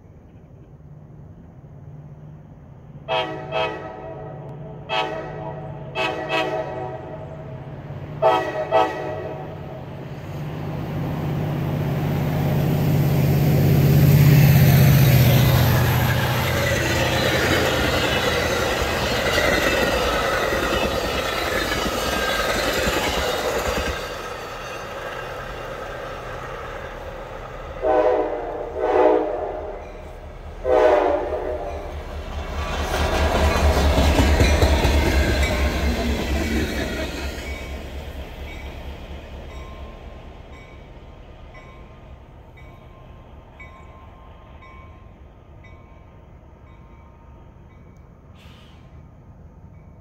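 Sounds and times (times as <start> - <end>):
train passing with wheel noise: 0.0 - 50.0
train horn blasts: 3.1 - 7.5, 8.2 - 9.8, 27.8 - 30.0, 30.6 - 32.0.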